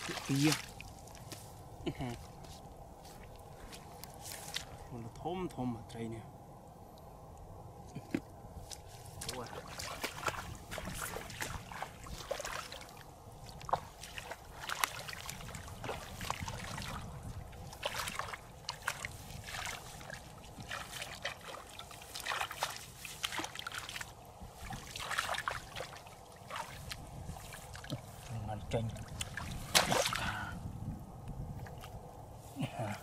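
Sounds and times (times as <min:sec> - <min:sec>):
small splashes and trickles: 0:00.0 - 0:01.4, 0:08.7 - 0:30.6
hands sloshing through muddy water: 0:00.0 - 0:02.5, 0:08.6 - 0:30.6.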